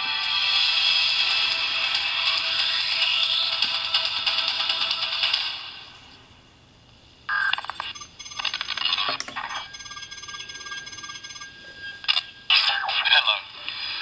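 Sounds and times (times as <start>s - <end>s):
tinny electronic beeps and chimes: 7.4s - 12.0s.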